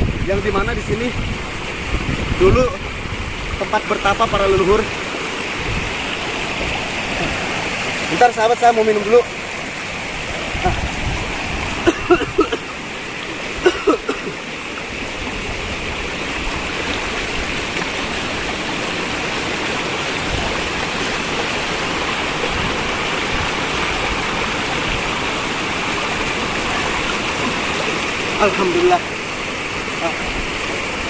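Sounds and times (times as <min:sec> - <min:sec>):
river water rushing over rocks: 0:00.0 - 0:31.0.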